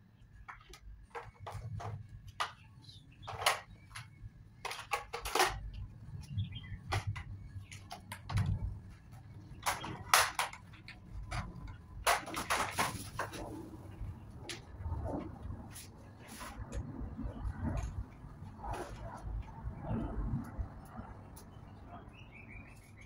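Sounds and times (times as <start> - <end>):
plastic parts clicking and rattling: 0.4 - 13.5.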